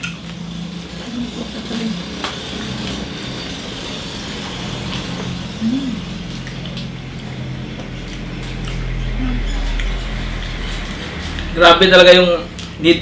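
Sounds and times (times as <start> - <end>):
chewing and crunching crispy food: 1.6 - 11.6.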